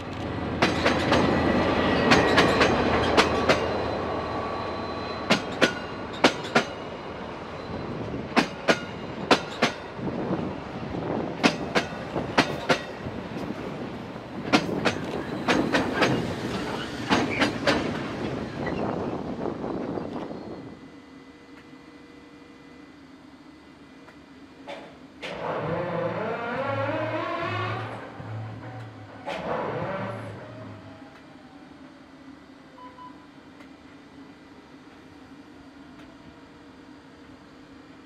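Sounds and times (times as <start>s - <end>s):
train wheels clicking over rail joints: 0.0s - 3.8s, 5.2s - 6.8s, 8.3s - 9.9s, 11.4s - 13.8s, 14.4s - 18.8s
diesel locomotive engine: 0.0s - 38.0s.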